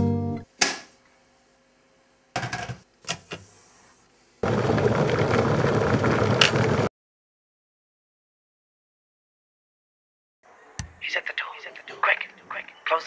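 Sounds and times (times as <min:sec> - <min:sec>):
kettle water boiling: 0:04.4 - 0:06.9.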